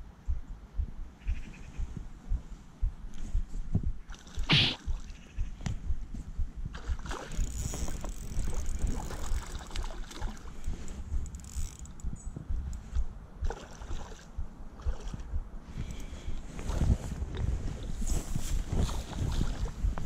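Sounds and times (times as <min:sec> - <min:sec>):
wind rumble: 0:00.0 - 0:20.0
microphone handling noise: 0:00.3 - 0:09.4, 0:10.5 - 0:13.6, 0:14.3 - 0:20.0
spinning reel winding: 0:07.4 - 0:09.7, 0:11.2 - 0:12.1.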